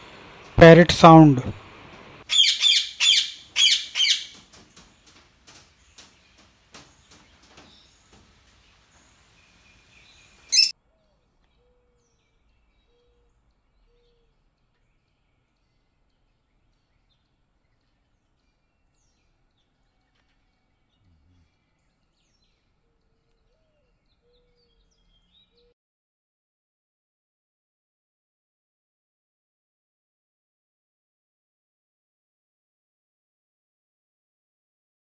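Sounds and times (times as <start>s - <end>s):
loud sharp parakeet squawk: 2.3s - 4.4s, 10.5s - 10.7s
parakeets chattering and squeaking: 2.3s - 5.0s, 6.0s - 10.7s.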